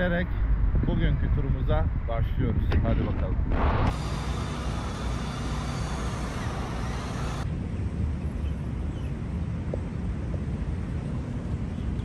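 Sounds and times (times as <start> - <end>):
road traffic rumble: 3.1 - 12.0.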